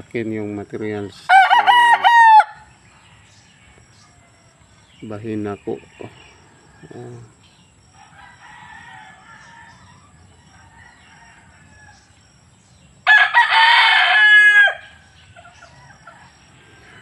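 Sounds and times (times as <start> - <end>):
rooster crowing: 1.3 - 4.5, 6.4 - 12.3, 13.0 - 17.0.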